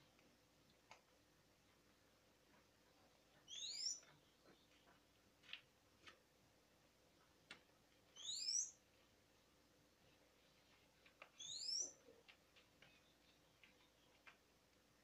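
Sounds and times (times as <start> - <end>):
bird whistling call: 3.5 - 4.0, 8.2 - 8.8, 11.4 - 12.0.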